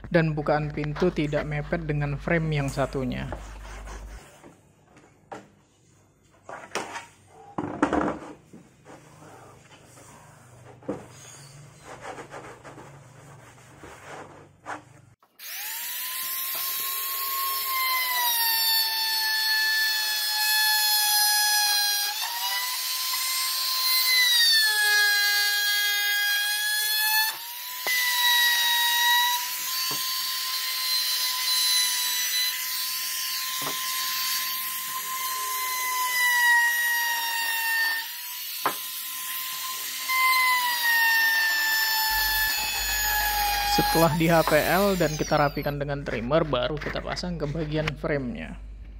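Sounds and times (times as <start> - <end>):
electric router high whine: 15.4 - 18.7, 37.2 - 45.7.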